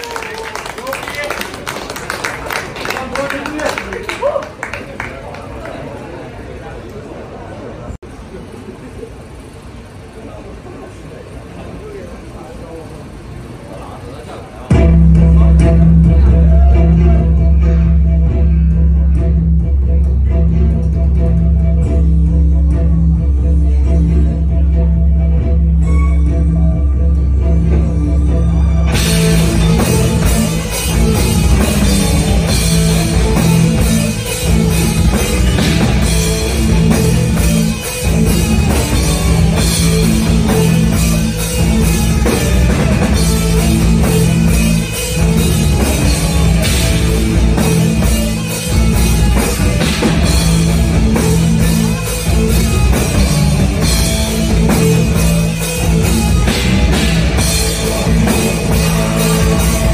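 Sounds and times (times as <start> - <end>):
metal band playing live: 14.7 - 59.9.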